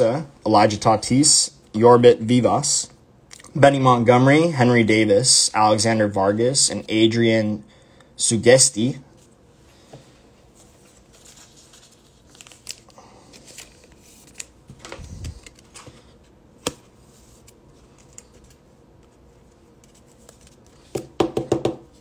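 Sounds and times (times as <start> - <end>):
card rustling: 10.5 - 21.1.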